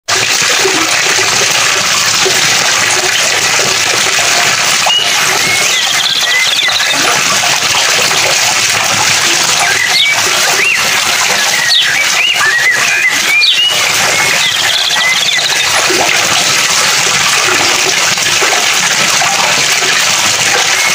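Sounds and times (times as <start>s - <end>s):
running water rushing: 0.0s - 20.9s
bird chirps and calls: 4.8s - 7.0s, 9.6s - 15.7s.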